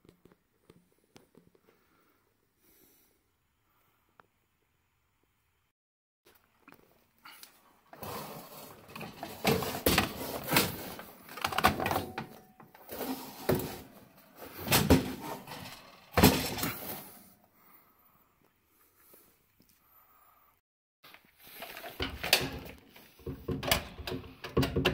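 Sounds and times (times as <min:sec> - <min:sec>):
sheet metal clattering and scraping: 0:08.0 - 0:17.1.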